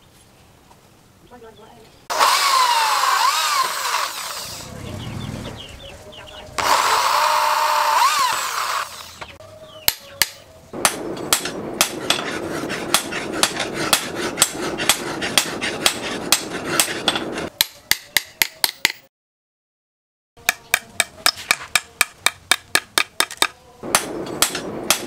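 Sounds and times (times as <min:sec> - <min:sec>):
power drill whining: 0:02.1 - 0:04.7, 0:06.6 - 0:09.3
hammer striking chisel on anvil: 0:09.8 - 0:19.1, 0:20.4 - 0:25.0.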